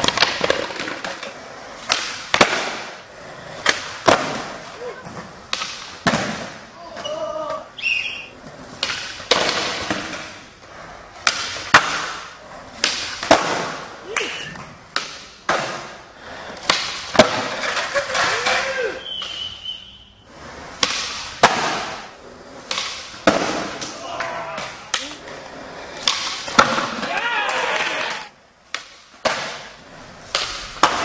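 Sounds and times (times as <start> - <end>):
skateboard landing clacks: 0.0 - 3.0, 3.6 - 4.7, 5.4 - 6.7, 8.6 - 10.5, 11.2 - 18.6, 20.8 - 31.0
skateboard tail pops: 0.0 - 3.0, 3.6 - 4.6, 5.5 - 6.6, 8.8 - 10.4, 11.2 - 16.0, 20.8 - 25.2, 26.0 - 31.0
skateboard wheels rolling on concrete: 0.0 - 31.0.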